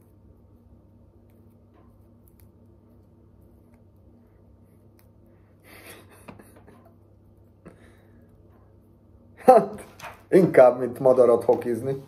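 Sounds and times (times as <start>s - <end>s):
low steady hum: 0.0s - 12.0s
person laughing breathily: 5.5s - 7.0s.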